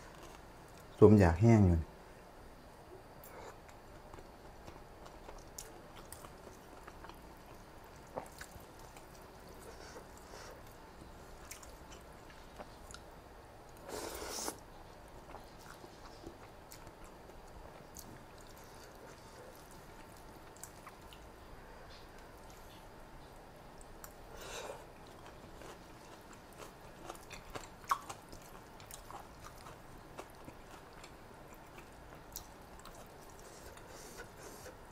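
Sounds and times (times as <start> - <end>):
chewing with wet mouth clicks: 3.6 - 13.1, 15.2 - 21.3, 25.0 - 34.8.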